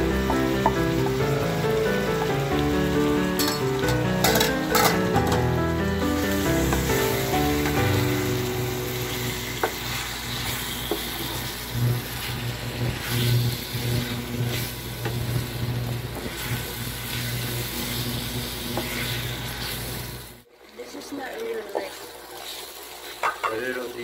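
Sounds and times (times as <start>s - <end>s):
food sizzling in a frying pan: 0.0s - 24.0s
spatula scraping a pan: 9.6s - 15.2s, 16.2s - 20.0s, 21.7s - 23.6s.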